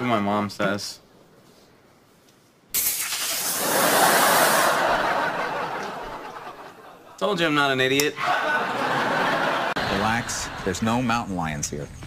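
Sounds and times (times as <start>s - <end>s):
studio audience laughing: 3.6s - 7.2s, 8.1s - 10.8s.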